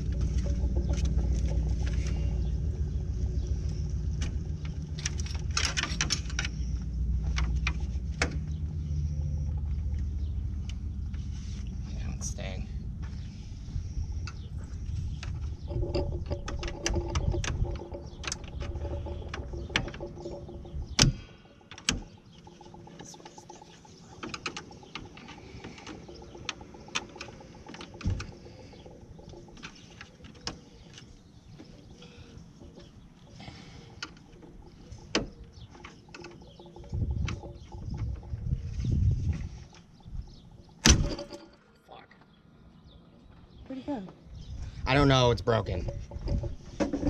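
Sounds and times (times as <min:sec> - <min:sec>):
low rumble: 0:00.0 - 0:30.1, 0:36.4 - 0:41.4.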